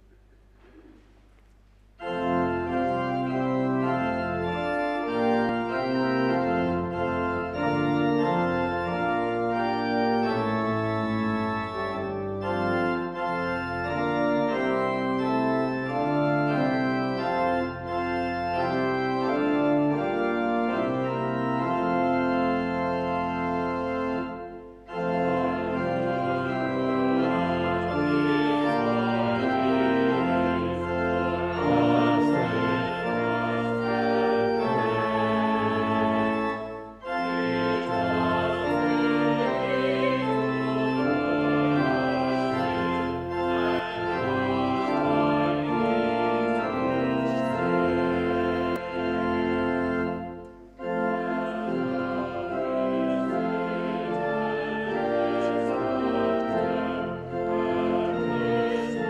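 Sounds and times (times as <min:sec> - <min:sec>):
pipe organ chords: 0:00.0 - 0:59.0
choir singing: 0:25.0 - 0:50.2, 0:50.8 - 0:59.0.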